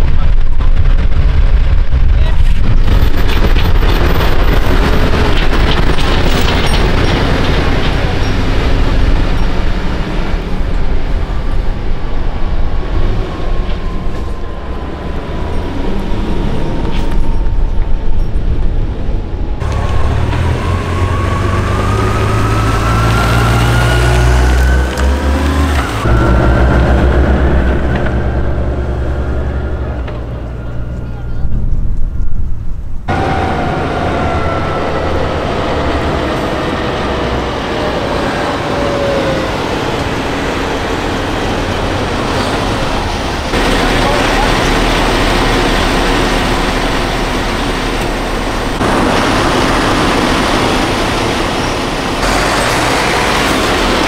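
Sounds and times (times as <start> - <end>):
truck diesel engine rumbling: 0.0 - 54.0
motorcycles accelerating: 19.6 - 31.4.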